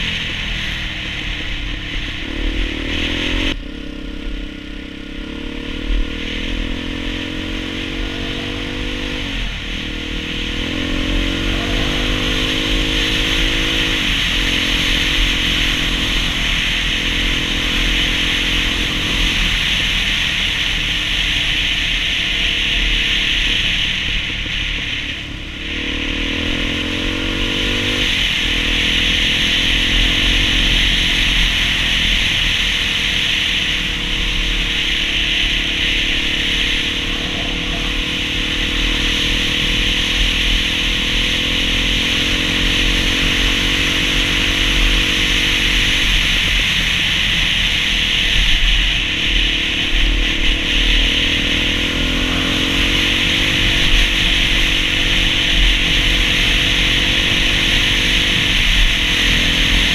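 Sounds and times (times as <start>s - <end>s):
dirt bike engine running: 0.0s - 59.9s
wind and road noise: 0.0s - 59.9s.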